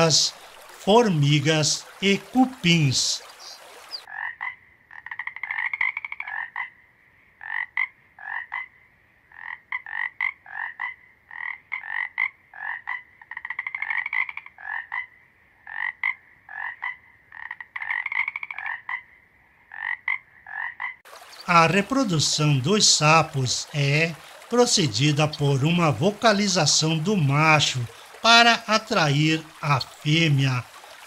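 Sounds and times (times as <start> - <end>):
frogs croaking: 0.0 - 31.0
frog trills of rapid clicks: 4.0 - 6.8, 7.4 - 21.6.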